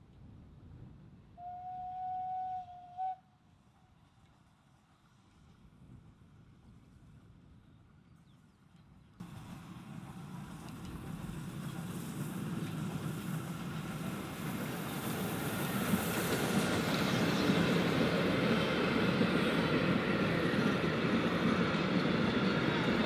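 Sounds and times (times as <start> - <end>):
steam locomotive passing: 9.2 - 23.0
train wheels clattering on rails: 9.2 - 23.0.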